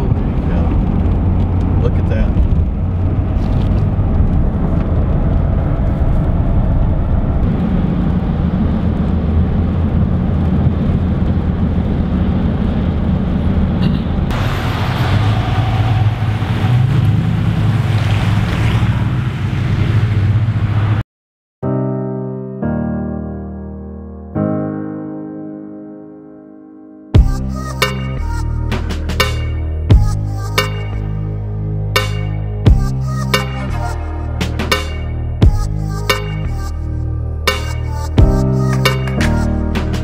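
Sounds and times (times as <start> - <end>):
car engine and road rumble: 0.0 - 21.0, 27.2 - 40.0.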